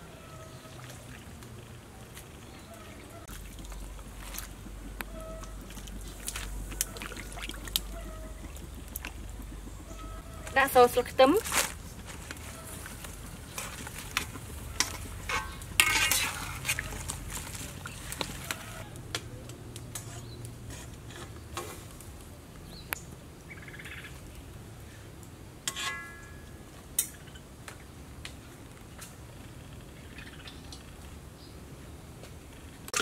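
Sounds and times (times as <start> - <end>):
boiling water hissing: 0.0 - 22.5.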